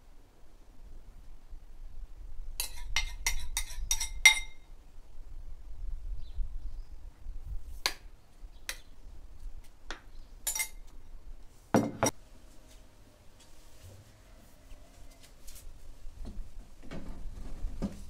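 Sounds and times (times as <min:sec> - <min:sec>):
metal spoon clinking ceramic bowl: 0:02.6 - 0:04.6, 0:10.4 - 0:10.9.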